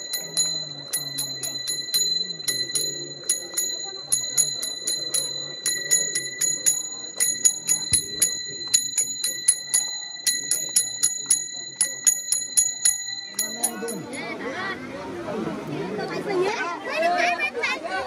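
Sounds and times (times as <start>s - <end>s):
metal bell struck rapidly: 0.0s - 14.3s
voices faintly chanting: 0.0s - 18.0s.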